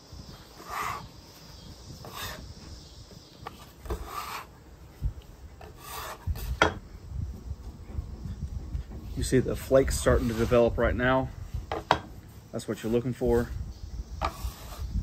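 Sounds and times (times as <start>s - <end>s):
metal scraper scraping wooden board: 0.6s - 1.1s, 2.0s - 2.4s, 3.5s - 4.5s, 5.6s - 6.8s, 9.9s - 10.7s, 14.2s - 15.0s.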